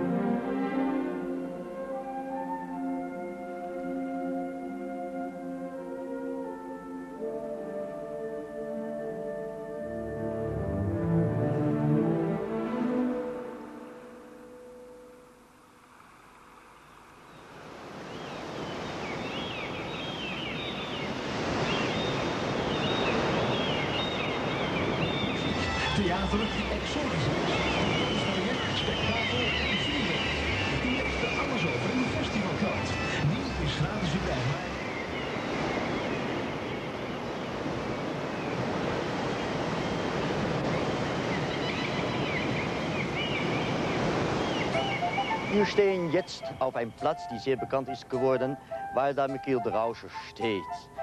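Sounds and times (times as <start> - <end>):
sea surf rushing: 17.4 - 51.0.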